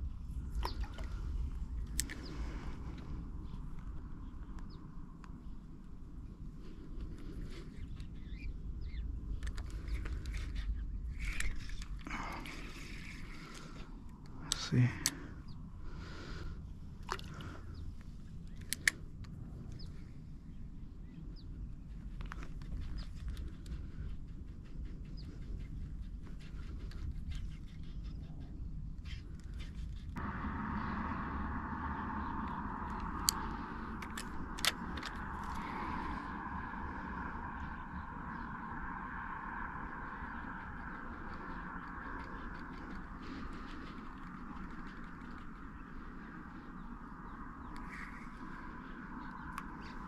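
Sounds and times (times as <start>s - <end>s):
steady low rumble: 0.0s - 50.0s
bird chirps: 7.4s - 11.9s
sharp clicks: 32.4s - 35.8s.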